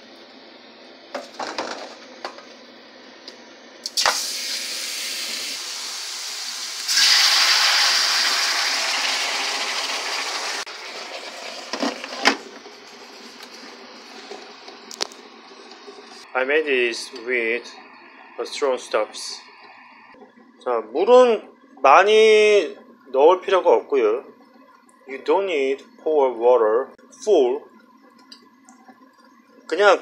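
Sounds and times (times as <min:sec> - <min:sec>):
water hissing in hot pan: 0:03.8 - 0:12.1.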